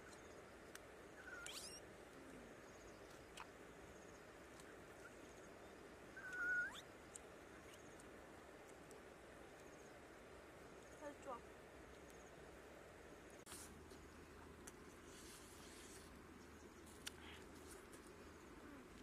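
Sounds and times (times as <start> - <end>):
faint background hiss: 0.0 - 19.0
high-pitched animal calls: 1.2 - 1.8, 6.2 - 6.9.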